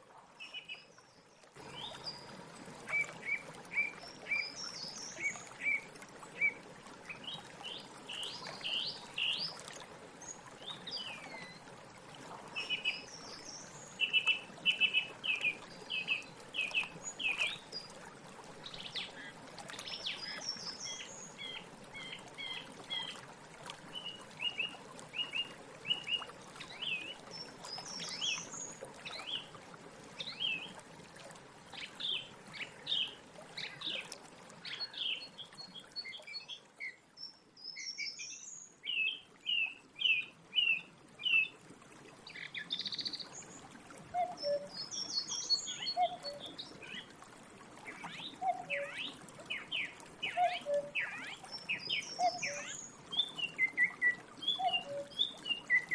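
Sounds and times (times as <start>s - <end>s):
song thrush singing: 12.6s - 17.7s, 44.2s - 47.1s, 48.0s - 55.9s.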